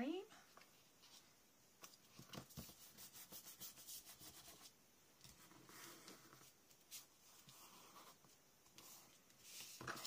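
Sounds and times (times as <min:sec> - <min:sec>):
paper rustling and tapping: 0:01.8 - 0:03.0
paper rubbing: 0:02.4 - 0:04.7.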